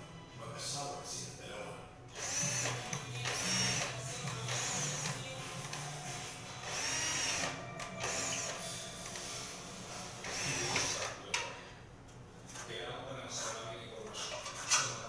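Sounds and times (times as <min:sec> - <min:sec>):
power drill whining: 0:02.1 - 0:05.3, 0:06.6 - 0:08.7, 0:10.2 - 0:11.2.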